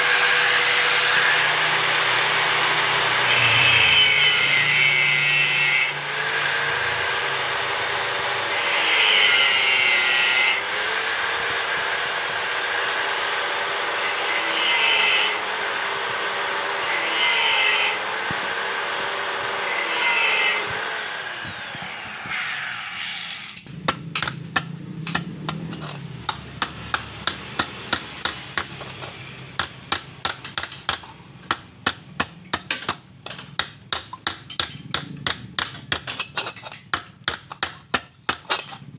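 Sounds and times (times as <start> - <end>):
angle grinder grinding steel: 0.0 - 31.0
hammer tapping steel on anvil: 23.9 - 38.8.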